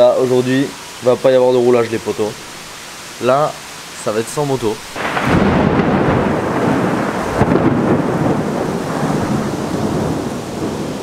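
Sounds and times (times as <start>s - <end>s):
heavy rain: 0.0s - 11.0s
thunder rumbling: 4.9s - 11.0s.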